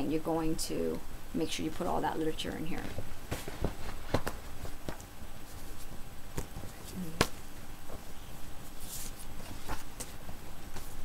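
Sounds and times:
paper rustling: 7.9 - 11.0.

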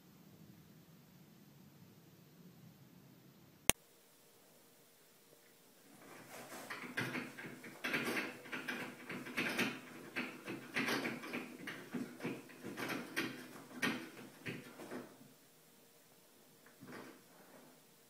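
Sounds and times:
roll rattling on metal holder: 6.1 - 15.1.

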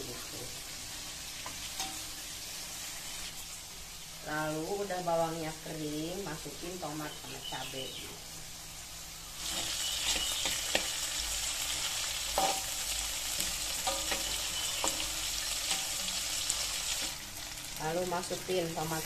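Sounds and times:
food sizzling in hot oil: 0.0 - 19.0
metal spatula scraping wok: 9.4 - 17.1.

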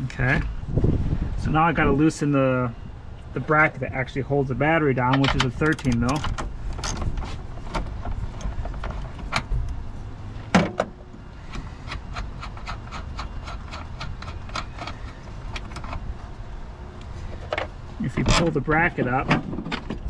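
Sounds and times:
steady low rumble: 0.0 - 20.0
ratchet wrench clicking: 11.5 - 16.0.

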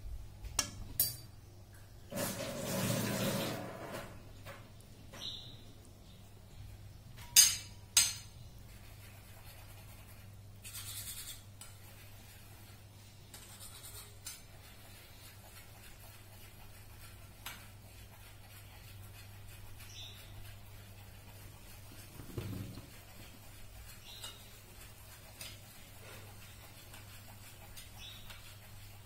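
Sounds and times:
cookware clinking: 0.6 - 1.3, 7.2 - 8.3.

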